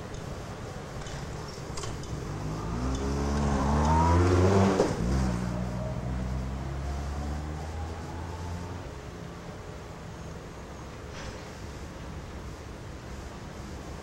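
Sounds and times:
diesel locomotive engine revving: 0:01.8 - 0:09.2.

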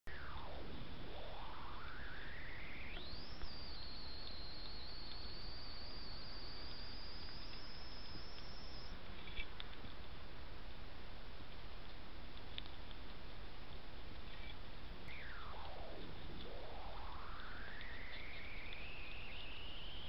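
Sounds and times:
high electronic whine: 0:00.1 - 0:09.0, 0:14.4 - 0:20.0
recording hiss: 0:00.1 - 0:20.0.

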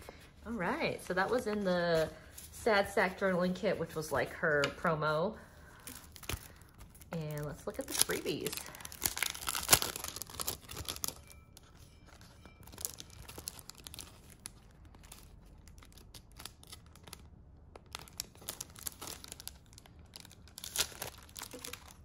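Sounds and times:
plastic packaging crinkling: 0:05.6 - 0:22.0.

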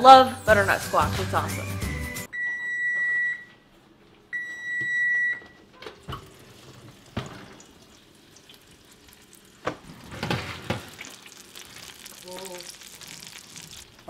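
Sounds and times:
oven timer beeping: 0:02.3 - 0:03.6, 0:04.3 - 0:05.6.

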